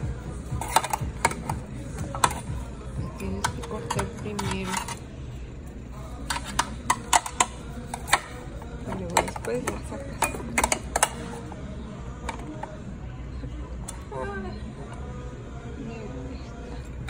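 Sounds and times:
murmur of voices: 0.0 - 17.0
cutlery and dishes clinking: 0.5 - 2.6, 3.2 - 5.0, 6.2 - 11.4.

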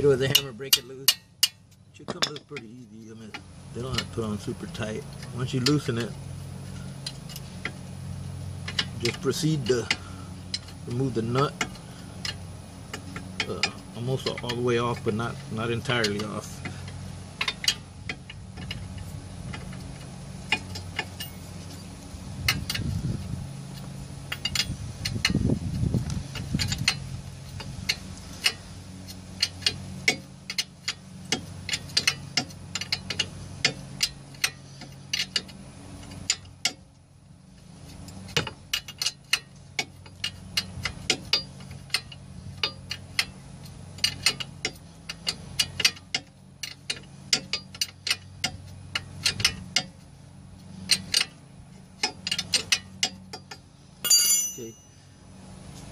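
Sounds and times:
steady low hum: 0.0 - 55.9
wrench clicking on metal: 0.2 - 4.1, 29.4 - 36.8, 38.3 - 43.3, 44.0 - 50.0, 50.8 - 51.4, 52.0 - 54.8.

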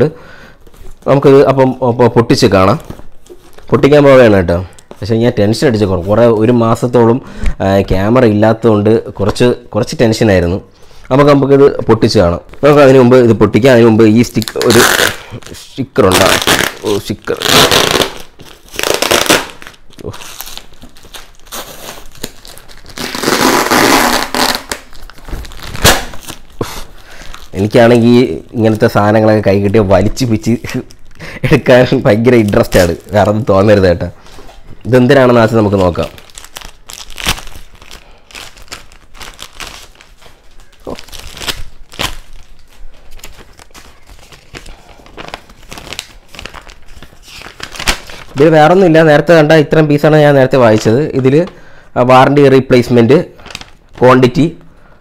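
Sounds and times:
crinkling plastic and paper: 14.1 - 48.8, 53.4 - 54.5
plastic pouch peeling and ripping: 14.2 - 28.9, 32.0 - 33.8, 35.4 - 48.5, 53.4 - 54.1.

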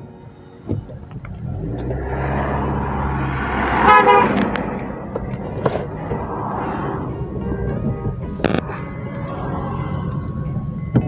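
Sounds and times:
car engine hum and road noise: 0.0 - 11.0
vehicle horn toot: 3.7 - 4.5.

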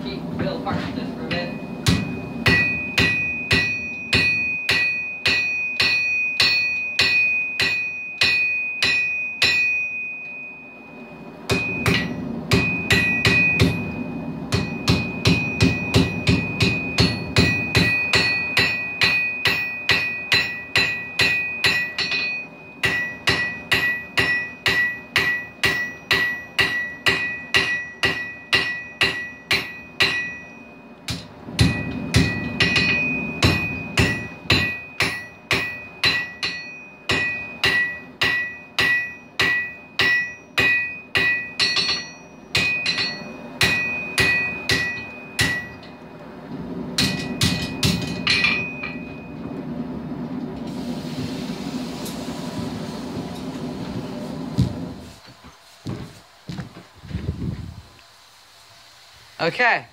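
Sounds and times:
hammer ringing on anvil: 1.2 - 46.0, 47.0 - 49.4.

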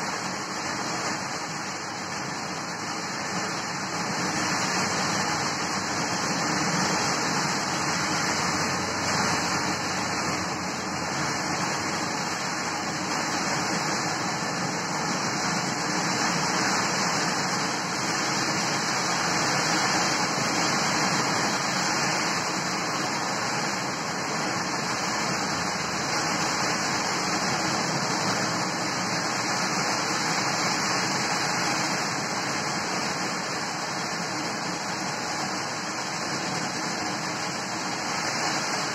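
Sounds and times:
heavy rain pouring: 0.0 - 38.9
traffic tyres on wet road: 0.0 - 38.9.

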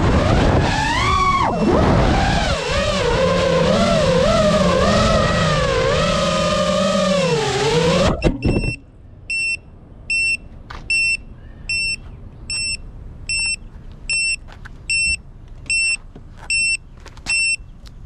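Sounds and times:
drone motors whining: 0.0 - 8.9
short high beeps: 8.2 - 17.6.

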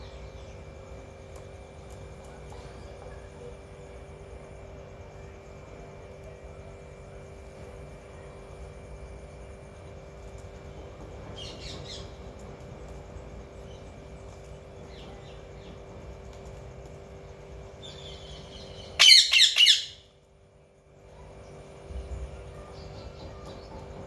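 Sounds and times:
parakeet chirps: 17.8 - 20.1
parakeet squawks: 18.9 - 20.0.

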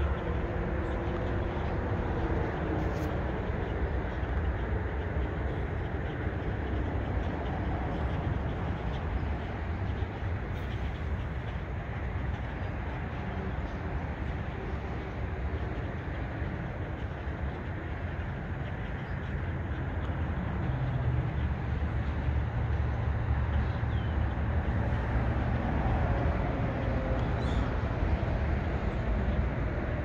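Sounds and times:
low outdoor rumble: 0.0 - 30.0.

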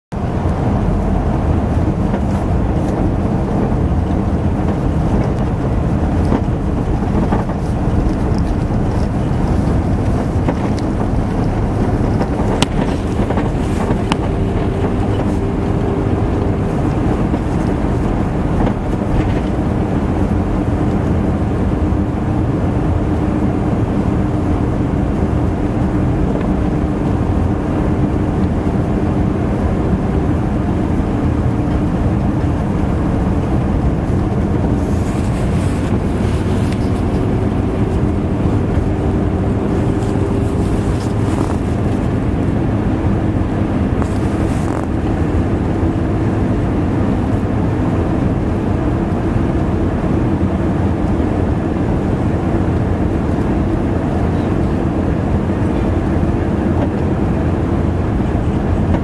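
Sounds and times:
car driving on road from inside: 0.1 - 59.0.

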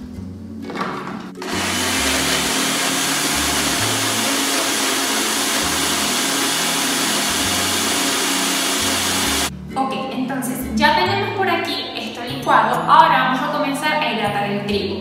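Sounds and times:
blender running: 1.4 - 9.5.

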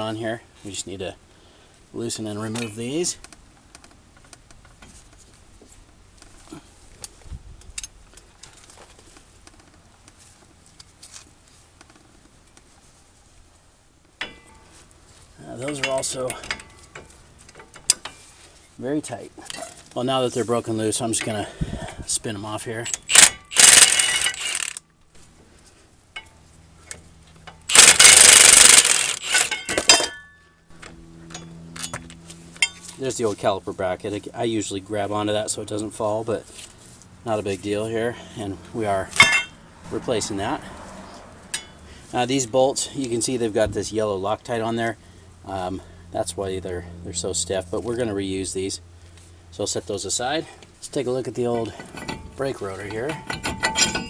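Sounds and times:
impact wrench bursts: 22.9 - 24.8, 27.7 - 30.1.

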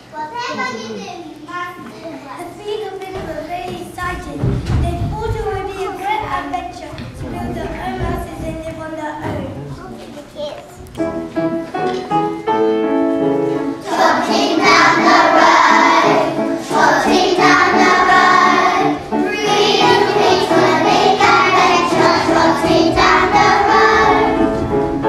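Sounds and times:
piano accompaniment: 10.8 - 25.0
children singing: 13.7 - 25.0.

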